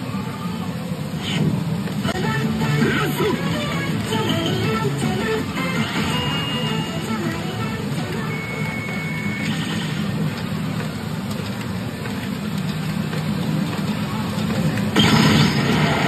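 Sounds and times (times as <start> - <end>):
din of pachinko machines: 0.0 - 16.0
high electronic beep: 8.3 - 9.8.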